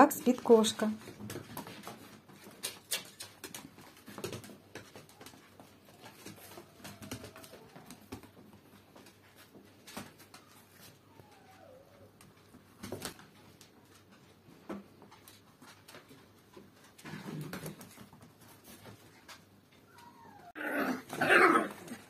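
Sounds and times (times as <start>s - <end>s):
dog claws clicking on tiles: 1.1s - 8.5s
faint dog whine: 10.3s - 12.3s, 19.7s - 21.6s.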